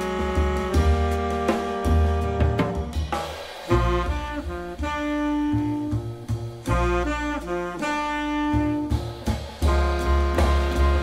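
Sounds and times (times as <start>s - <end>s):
deep bass line: 0.0s - 3.0s, 3.7s - 11.0s
jazz through loudspeakers: 0.0s - 11.0s.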